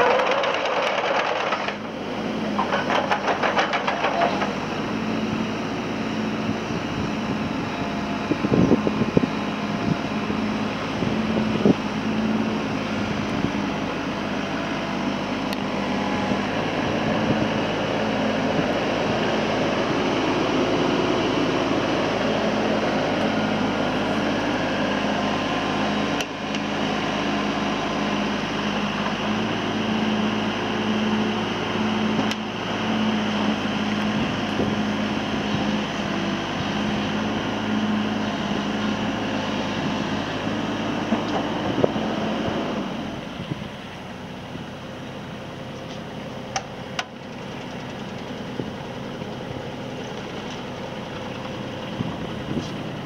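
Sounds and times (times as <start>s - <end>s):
diesel engine running: 0.0s - 53.0s.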